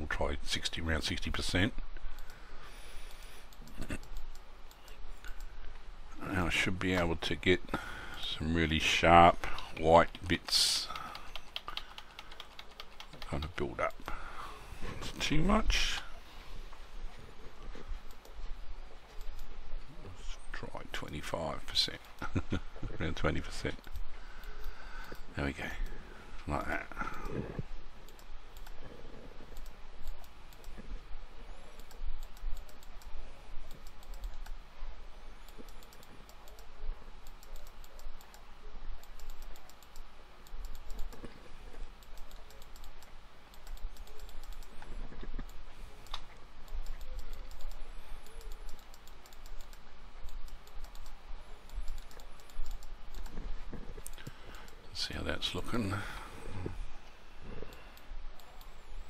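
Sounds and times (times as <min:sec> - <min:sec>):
keyboard and mouse clicking: 0:03.0 - 0:05.5, 0:09.5 - 0:14.2, 0:29.5 - 0:30.8, 0:31.7 - 0:34.6, 0:35.4 - 0:38.4, 0:39.0 - 0:54.8.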